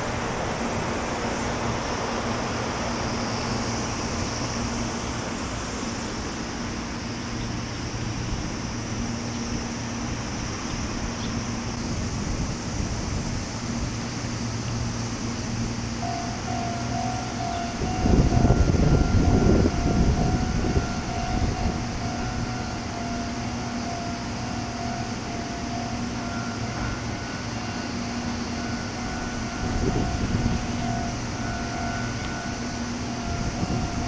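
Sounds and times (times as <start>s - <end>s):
thin high tone: 15.2s - 34.0s.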